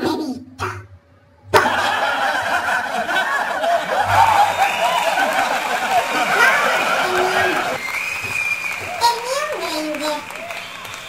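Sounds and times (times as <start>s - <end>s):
crowd clapping: 1.6s - 11.0s
crowd voices: 1.6s - 11.0s.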